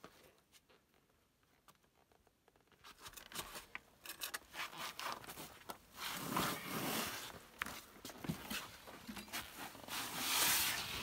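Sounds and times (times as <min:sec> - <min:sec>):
backpack scraping against rock: 0:04.5 - 0:07.4.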